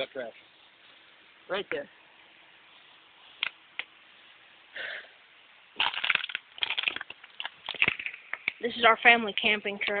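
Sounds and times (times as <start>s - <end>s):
crunching and rustling: 5.8s - 8.6s.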